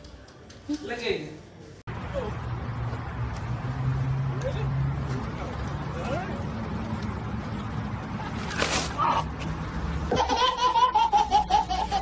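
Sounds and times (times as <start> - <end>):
outdoor street noise: 1.4 - 12.0
baby laughing: 10.1 - 12.0.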